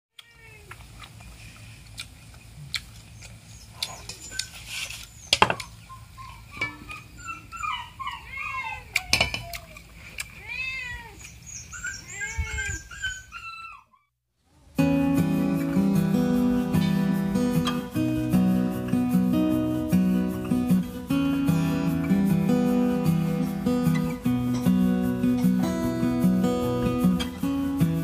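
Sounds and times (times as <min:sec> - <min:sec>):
cats meowing: 0:00.2 - 0:00.8, 0:10.4 - 0:14.0.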